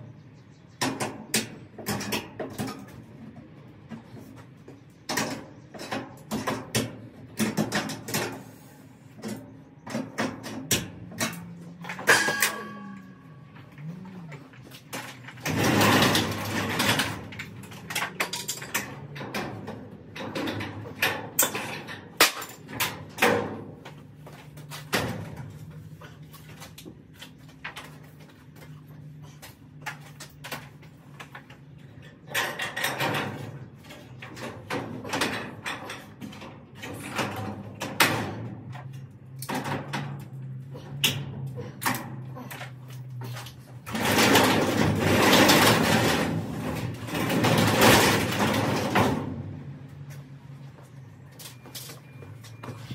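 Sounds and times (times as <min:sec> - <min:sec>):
loud clatter: 0:14.9 - 0:23.3, 0:43.8 - 0:49.6
garage door rattling in tracks: 0:15.0 - 0:23.8, 0:31.6 - 0:40.6, 0:43.7 - 0:50.1.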